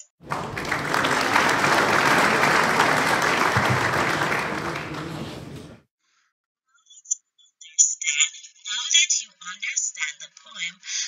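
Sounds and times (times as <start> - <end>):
crowd clapping: 0.2 - 5.8.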